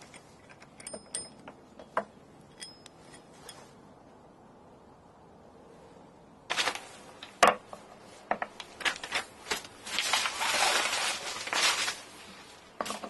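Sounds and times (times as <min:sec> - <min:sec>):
packaging rustling and crinkling: 0:06.5 - 0:07.4, 0:08.5 - 0:13.0.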